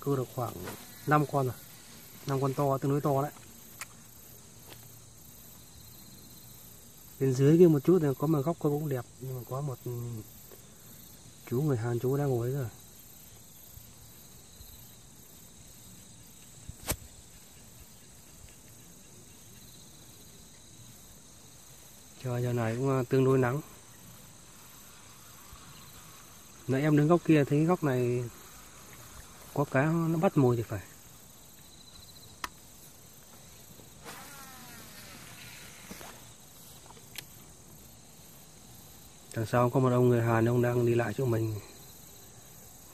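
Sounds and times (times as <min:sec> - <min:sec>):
insect chirring: 0:00.0 - 0:42.9
small click: 0:16.4 - 0:17.1, 0:36.9 - 0:37.3
sharp click: 0:16.8 - 0:17.1.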